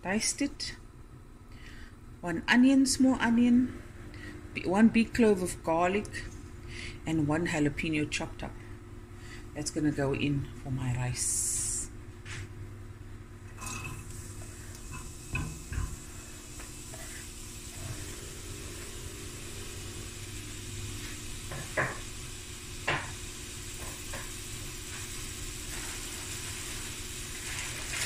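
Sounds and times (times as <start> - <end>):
vegetables sizzling in hot oil: 13.6 - 28.0.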